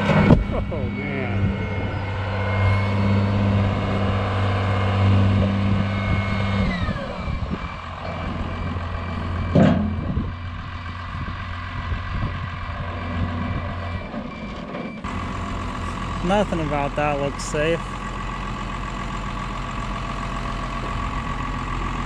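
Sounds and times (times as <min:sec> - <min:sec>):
short falling whine: 0:00.0 - 0:10.6
tractor engine running: 0:00.0 - 0:22.0.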